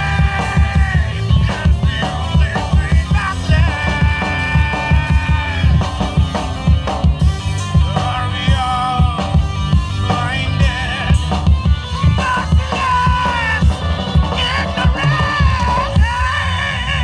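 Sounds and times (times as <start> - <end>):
person singing: 0.0 - 6.2, 7.7 - 17.0
bass guitar: 0.0 - 17.0
drum kit: 0.0 - 17.0
electric guitars: 0.0 - 17.0.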